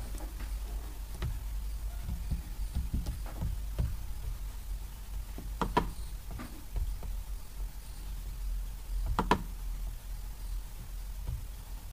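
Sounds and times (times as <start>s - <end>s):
low hum: 0.0s - 11.9s
faint soft taps: 0.1s - 4.5s.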